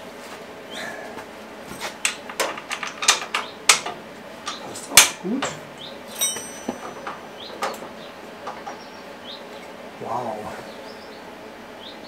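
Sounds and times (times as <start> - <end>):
metal parts and tools clinking: 4.5 - 7.2.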